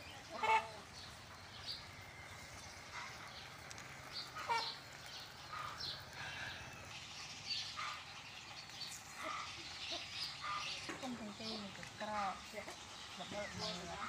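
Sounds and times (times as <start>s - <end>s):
animals chirping and squeaking: 0.0s - 14.0s.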